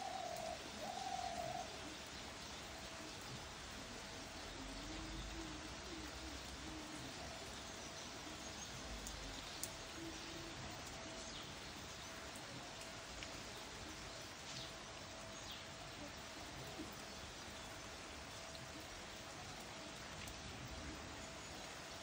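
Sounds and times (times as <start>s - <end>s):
faint bird calls: 0.0s - 2.1s
heavy rain hissing: 0.0s - 22.0s.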